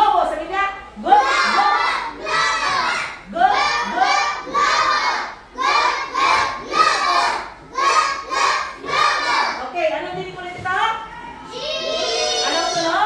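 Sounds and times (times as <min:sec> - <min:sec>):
children chanting in chorus: 0:01.1 - 0:09.6, 0:11.5 - 0:12.8.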